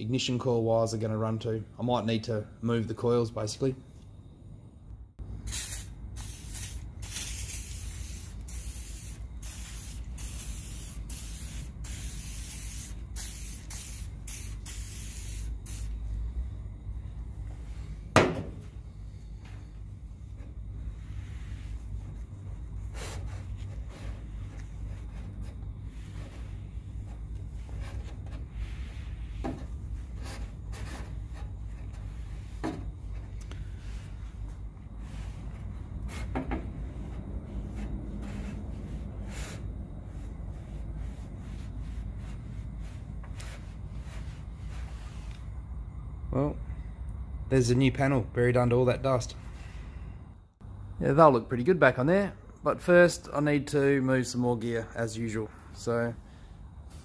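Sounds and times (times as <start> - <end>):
steady low hum: 1.0 - 57.0
aerosol spray can hissing: 5.4 - 16.0
cloth rubbing on plastic: 20.2 - 32.6, 36.9 - 45.3.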